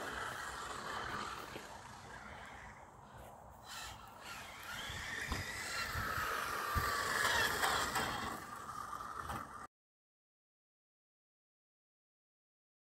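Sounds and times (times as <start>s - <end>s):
rc car electric motor whining: 0.0s - 9.7s.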